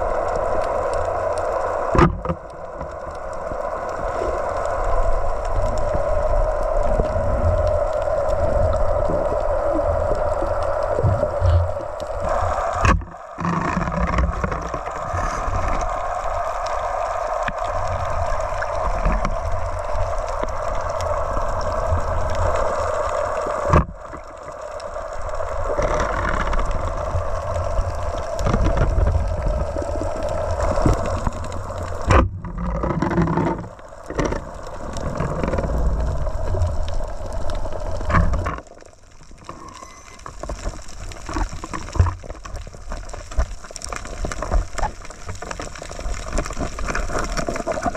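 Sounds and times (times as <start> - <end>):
underwater rush of water: 0.0 - 47.9
low rumble: 5.2 - 22.6.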